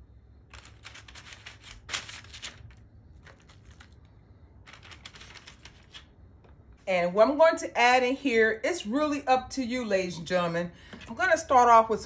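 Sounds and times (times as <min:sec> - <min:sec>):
parchment paper crinkling: 0:00.5 - 0:06.2.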